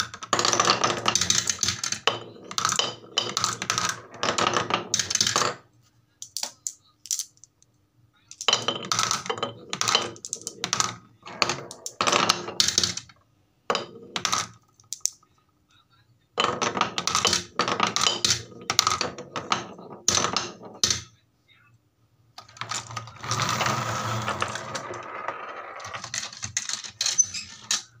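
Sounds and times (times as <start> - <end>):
marbles clattering into plastic truck: 0.0 - 5.6, 8.4 - 13.1, 13.7 - 15.2, 16.4 - 21.1, 22.4 - 28.0
marbles rolling on wooden track: 0.0 - 5.6, 8.4 - 15.2, 16.4 - 21.1, 22.4 - 28.0.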